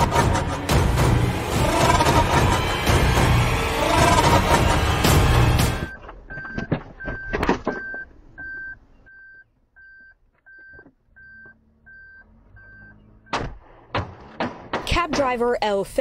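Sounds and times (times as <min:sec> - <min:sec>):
music: 0:00.0 - 0:06.0
car warning chime beeping: 0:05.8 - 0:13.4.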